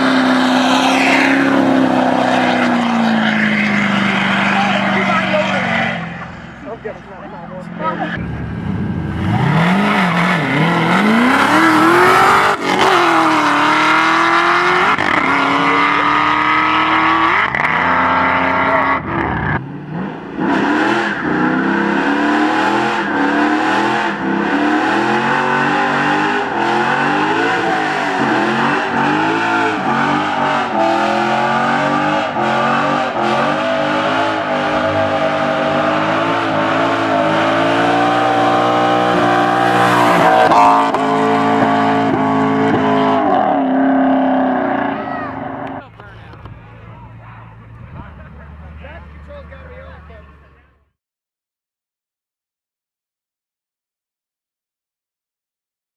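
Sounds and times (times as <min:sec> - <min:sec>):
car engine revving hard: 0:00.0 - 0:06.0, 0:07.8 - 0:45.8
tires squealing on asphalt: 0:00.0 - 0:50.6.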